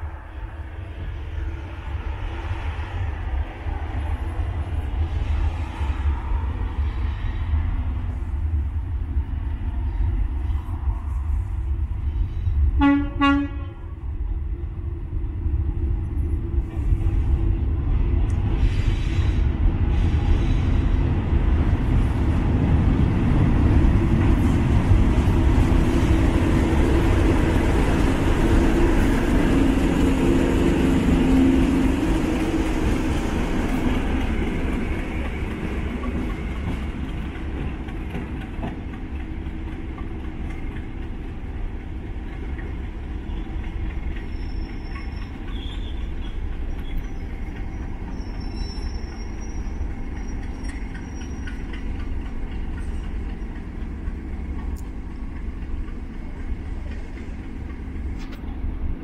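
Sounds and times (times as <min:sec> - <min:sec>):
diesel locomotive engines: 0:00.0 - 0:59.0
rail and wheel noise: 0:00.0 - 0:59.0
high-pitched wheel squeal: 0:44.2 - 0:51.8.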